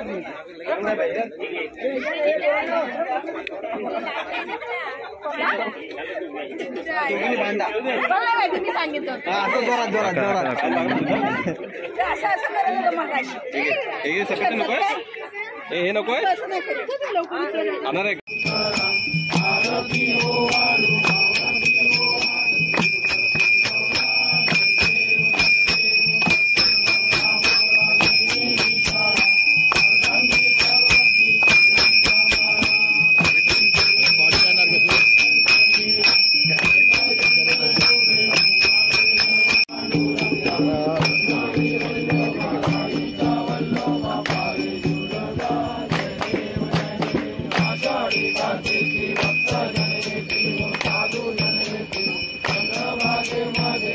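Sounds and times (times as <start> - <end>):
group singing: 0.0 - 15.2, 17.3 - 53.9
hand bell ringing: 18.3 - 53.9
rhythmic hand clapping: 18.3 - 53.9.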